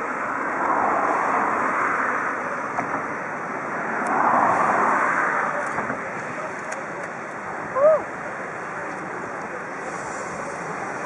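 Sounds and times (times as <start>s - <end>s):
steam locomotive rushing steam: 9.6s - 11.0s.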